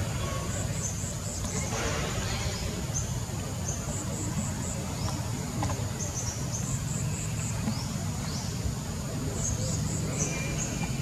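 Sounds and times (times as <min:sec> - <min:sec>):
insects chirping: 0:00.0 - 0:11.0.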